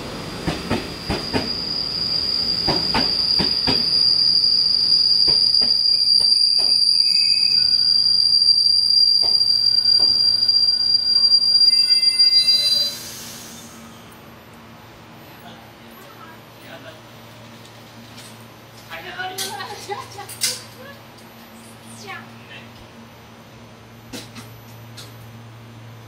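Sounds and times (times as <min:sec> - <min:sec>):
train brakes squealing: 0:00.5 - 0:14.2.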